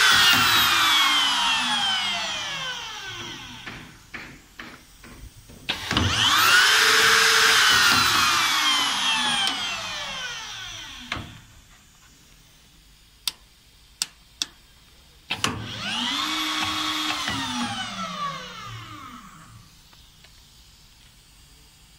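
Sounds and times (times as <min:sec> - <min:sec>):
router motor whining: 0:00.0 - 0:04.1, 0:05.7 - 0:11.6, 0:15.3 - 0:20.3
sharp clicks: 0:13.2 - 0:14.6.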